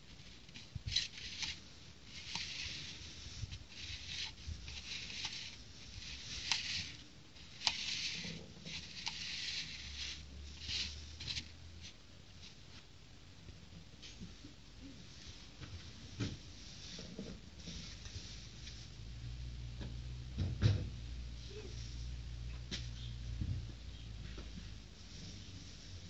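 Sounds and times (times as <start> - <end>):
plastic plate scraping on wood: 0.9 - 11.4.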